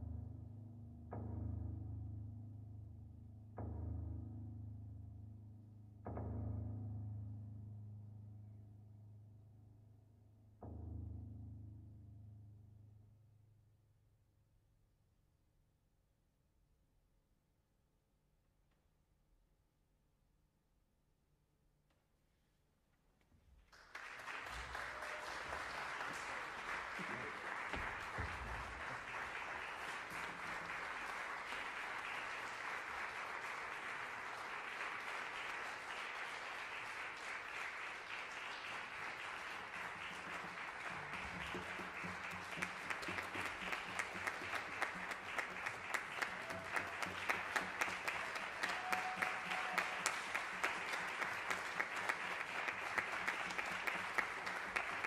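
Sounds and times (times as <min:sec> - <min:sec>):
audience applauding: 0:23.7 - 0:55.0
single loud claps: 0:23.8 - 0:55.0.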